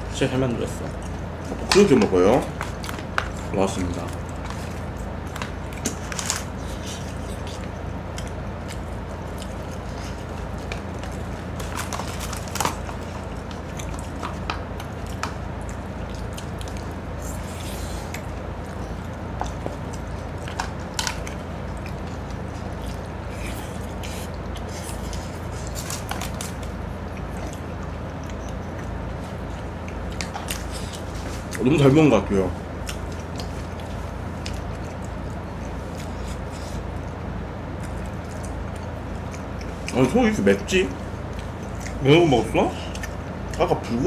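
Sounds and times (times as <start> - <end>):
steady low hum: 0.0 - 44.0
chewing and mouth noises: 0.1 - 44.0.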